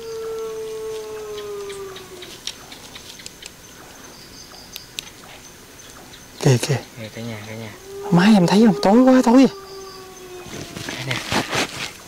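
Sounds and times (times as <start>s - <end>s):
dog-like howl: 0.0s - 2.3s, 7.8s - 11.8s.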